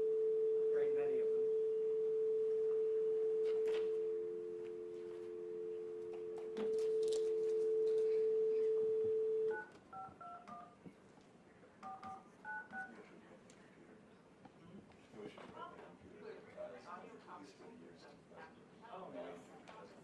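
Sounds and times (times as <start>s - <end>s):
telephone dial tone: 0.0s - 10.7s
touch-tone beeps: 0.0s - 10.7s.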